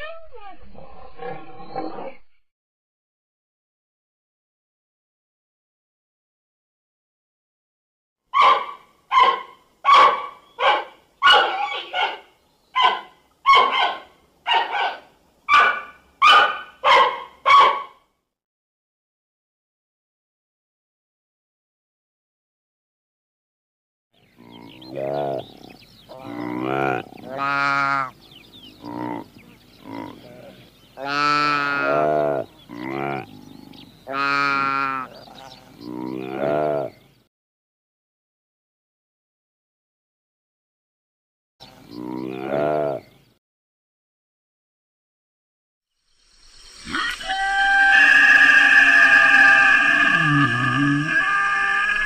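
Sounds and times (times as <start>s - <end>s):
antelope calling: 8.3s - 17.2s, 24.4s - 37.0s, 46.8s - 52.0s
giant panda calling: 46.9s - 52.0s.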